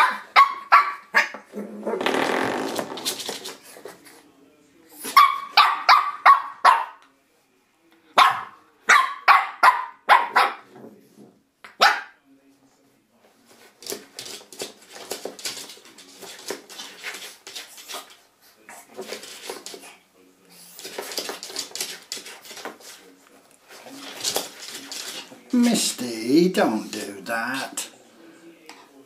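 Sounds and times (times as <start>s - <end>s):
puppy barking in high yaps: 0.0s - 1.4s, 5.1s - 7.0s, 8.2s - 10.6s, 11.8s - 12.2s.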